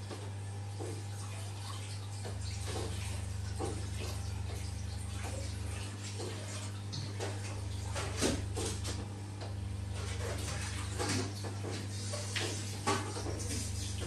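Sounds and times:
massage chair motor hum: 0.0s - 14.0s.

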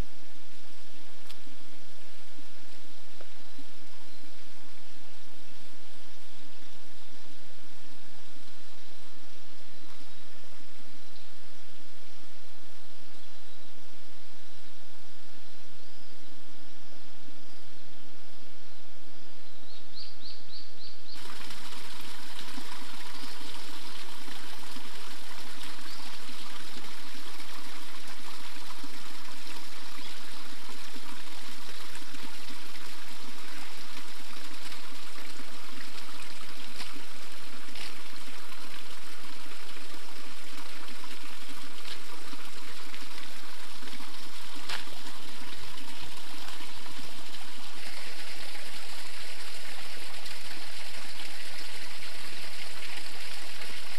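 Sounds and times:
small waterfall splashing: 21.2s - 53.9s.

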